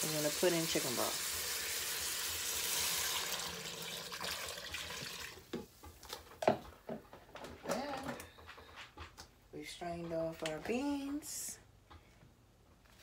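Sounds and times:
broth pouring into steel pot: 0.0s - 5.4s.

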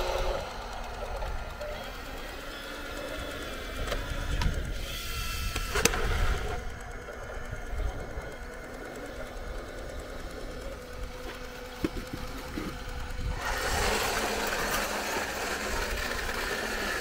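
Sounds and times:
sharp clicks: 0.0s - 16.9s
electric gear motors whining: 0.0s - 17.0s.

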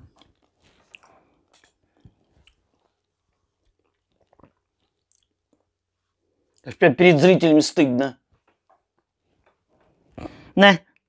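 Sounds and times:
chewing with mouth clicks: 0.0s - 5.8s.

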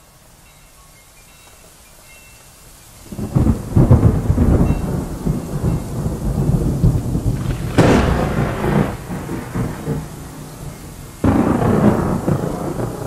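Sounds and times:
rain hissing: 0.0s - 13.0s
thunder rumbling: 3.0s - 13.0s
sharp thunderclap: 3.1s - 13.0s.

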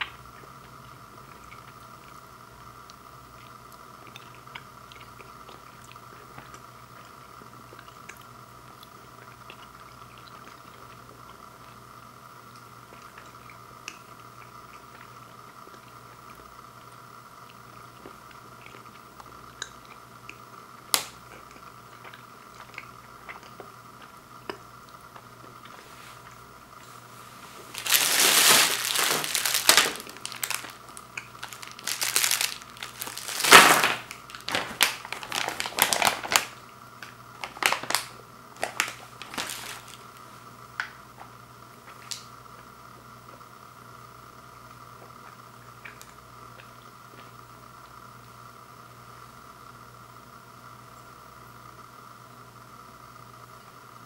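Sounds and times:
low steady hum: 0.0s - 54.0s
plastic wrappers crinkling: 27.1s - 36.6s, 37.4s - 40.2s.

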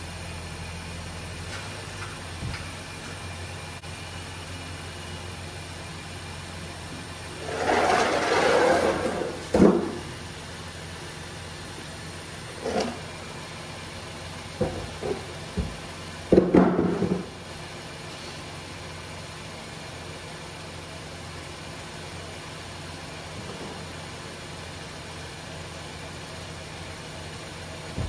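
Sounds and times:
car engine idling: 0.0s - 28.0s
car ramps scraping on floor: 7.3s - 10.1s, 12.5s - 13.1s
car ramp knocks and clacks: 14.6s - 17.4s.

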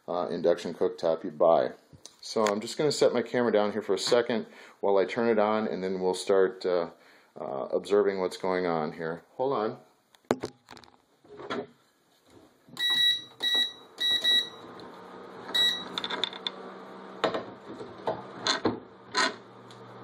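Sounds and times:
cooktop humming: 12.7s - 20.0s
cooktop control panel beeps: 12.8s - 14.6s, 15.5s - 16.0s.

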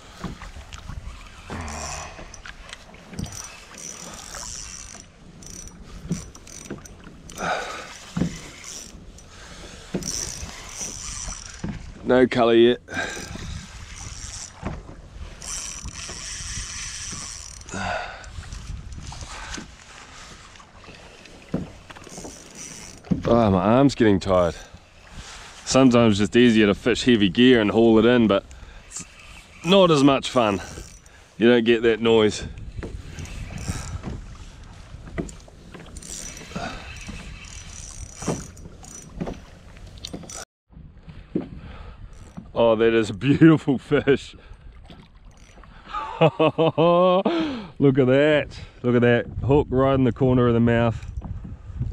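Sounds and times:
wind rumble on microphone: 0.0s - 3.5s, 12.9s - 20.4s, 31.8s - 43.3s, 48.3s - 51.9s
fishing reel drag whirring: 0.9s - 11.6s, 13.0s - 19.9s, 20.5s - 23.1s, 28.5s - 31.3s, 33.0s - 34.1s, 35.2s - 40.4s.

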